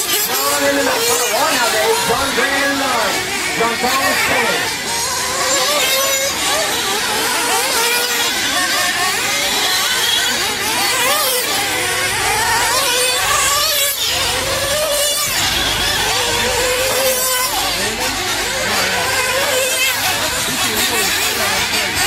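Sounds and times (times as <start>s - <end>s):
small two-stroke engines revving: 0.0s - 22.0s.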